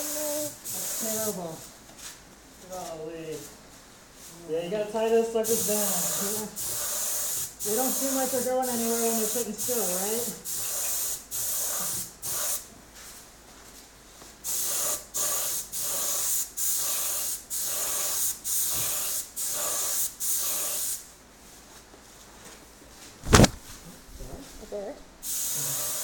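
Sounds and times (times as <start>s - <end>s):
paint spray gun hissing: 5.4s - 12.6s, 25.2s - 26.0s.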